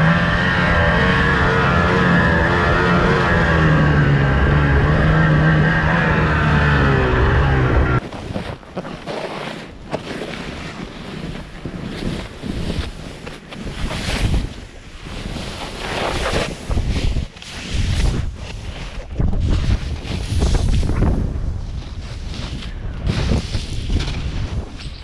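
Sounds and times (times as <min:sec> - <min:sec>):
loud low-pitched sound: 0:00.0 - 0:08.0
snowboard swishing through snow: 0:08.0 - 0:25.0
wind rushing over microphone: 0:13.7 - 0:25.0.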